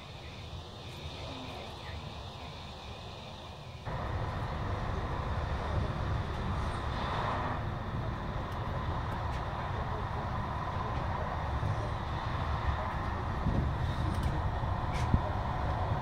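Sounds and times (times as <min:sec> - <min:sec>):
train wheels rumbling on rails: 0:03.8 - 0:16.0.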